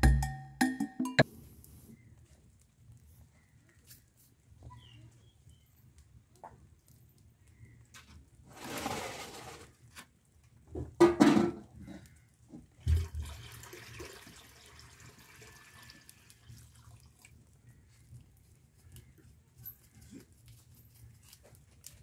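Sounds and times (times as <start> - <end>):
metal pot clattering: 11.0 - 11.6
water pouring into metal pot: 12.8 - 17.4.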